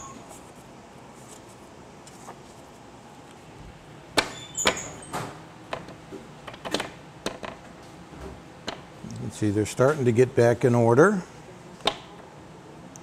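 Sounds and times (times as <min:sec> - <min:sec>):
low steady background noise: 0:00.0 - 0:13.0
punched cards knocking and clacking: 0:04.2 - 0:07.6.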